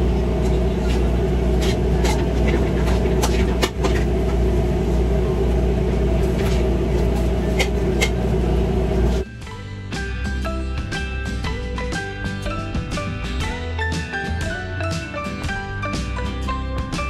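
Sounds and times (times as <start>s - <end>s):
kitchen equipment drone: 0.0s - 13.7s.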